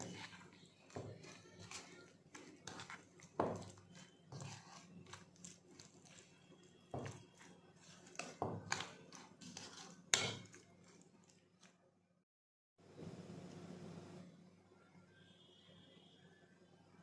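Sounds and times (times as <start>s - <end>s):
spoon stirring thick mixture: 0.0s - 11.8s.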